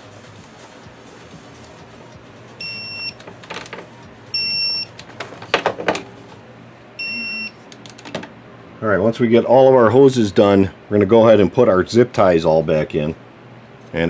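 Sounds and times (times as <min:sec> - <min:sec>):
torque wrench high-pitched beeps: 0:02.6 - 0:03.2, 0:04.4 - 0:04.9, 0:07.0 - 0:07.6.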